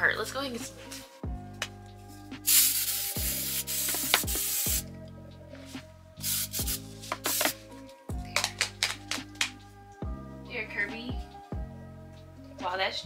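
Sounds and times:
aerosol spray hissing: 2.4 - 4.9, 6.2 - 7.6.

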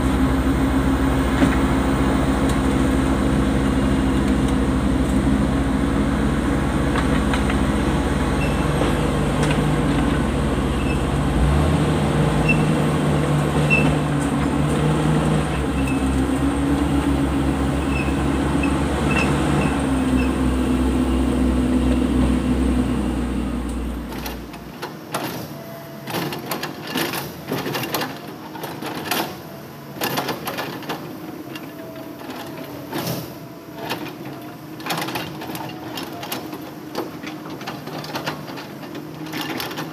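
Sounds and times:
bulldozer diesel engine: 0.0 - 39.9.

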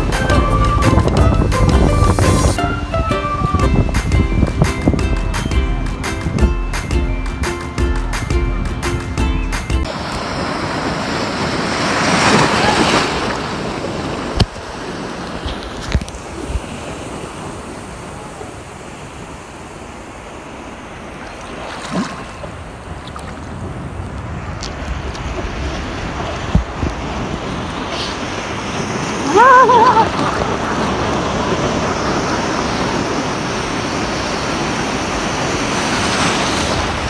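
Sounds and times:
wind on microphone: 0.0 - 7.4, 8.2 - 37.0
background music: 0.0 - 9.9
sea water sloshing: 21.0 - 23.6.

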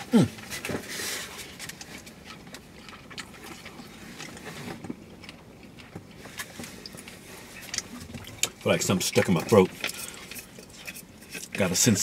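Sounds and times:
person chewing: 0.0 - 11.7.

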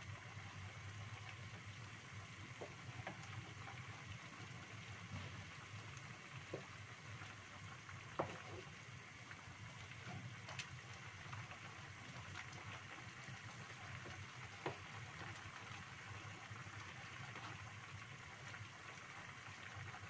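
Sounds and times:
soup simmering with a hiss: 0.0 - 20.0.

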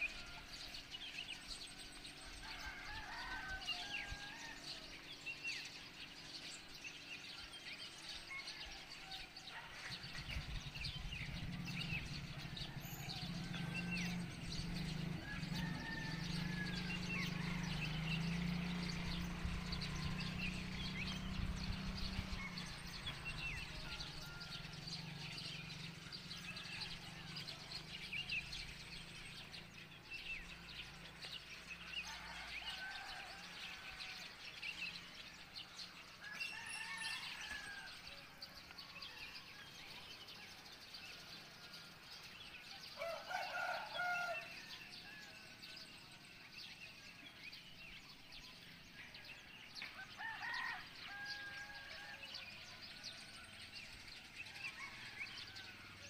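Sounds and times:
small birds chirping: 0.0 - 56.0
rooster crowing: 2.3 - 5.0, 11.6 - 25.4, 30.4 - 34.7, 35.9 - 38.3, 42.6 - 45.9, 49.3 - 56.0.

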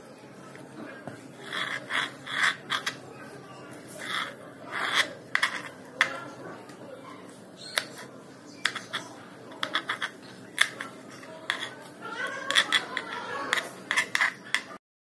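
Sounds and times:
knife scraping: 1.4 - 3.0, 3.7 - 6.6, 7.6 - 14.8.

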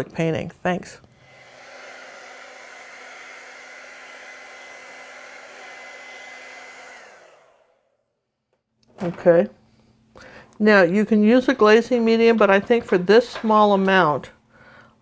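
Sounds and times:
hair dryer blowing: 1.1 - 8.1.

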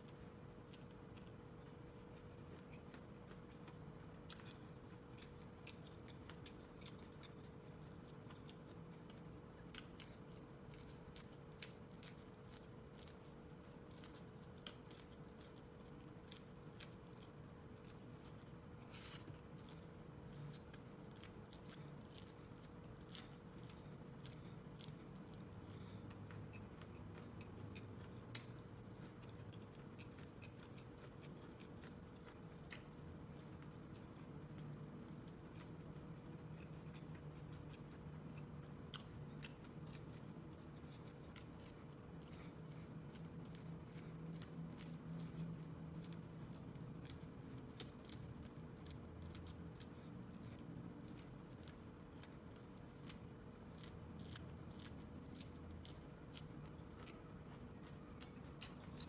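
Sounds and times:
corn on the cob being chewed: 0.0 - 59.0
low steady hum: 0.0 - 59.0.

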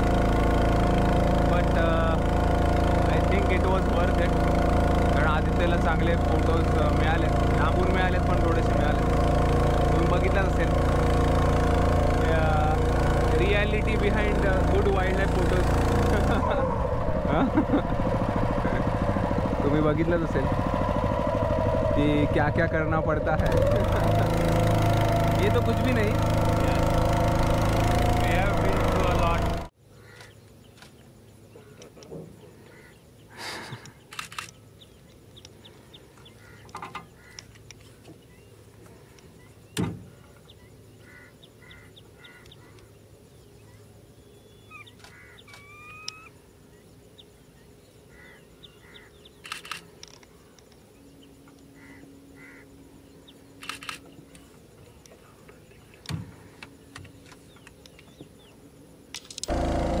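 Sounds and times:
bird calls: 1.1 - 17.9, 18.6 - 60.0.

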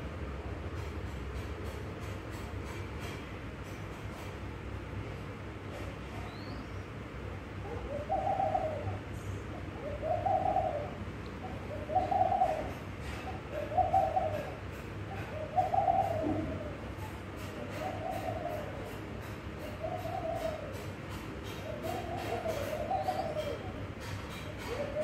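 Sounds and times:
dove cooing: 7.6 - 19.0, 19.6 - 25.0.

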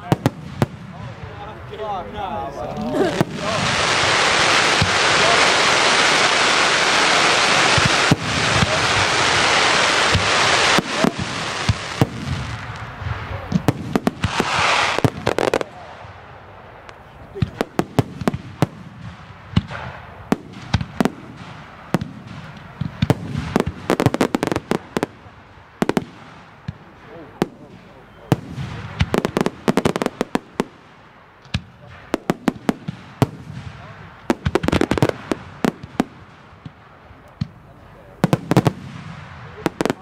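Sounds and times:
firework crackling hiss: 2.5 - 27.9
firework shells bursting: 2.8 - 15.8.

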